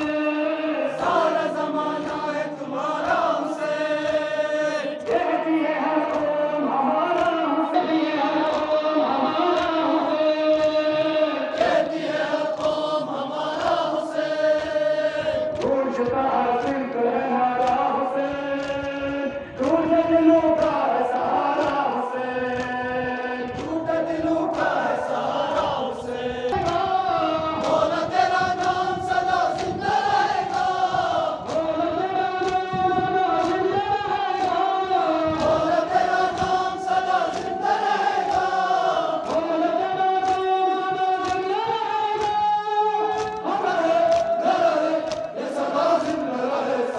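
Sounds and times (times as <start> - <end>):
men chanting a lament: 0.0 - 46.9.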